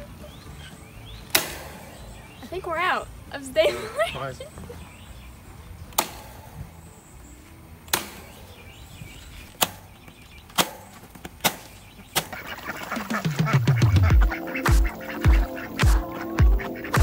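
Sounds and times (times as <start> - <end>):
music: 0.0 - 4.1, 12.9 - 17.0.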